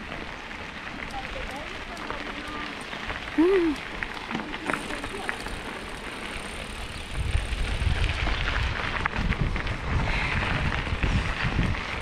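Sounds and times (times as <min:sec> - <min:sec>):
bike tyres crunching on gravel: 0:00.0 - 0:12.0
wind rumble on microphone: 0:06.4 - 0:12.0.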